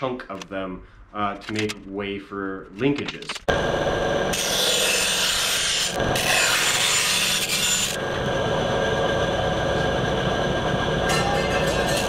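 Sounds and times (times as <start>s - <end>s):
bandsaw cutting aluminum sheet: 4.3s - 8.0s, 11.0s - 12.0s
bandsaw running: 4.3s - 8.1s, 11.1s - 12.0s.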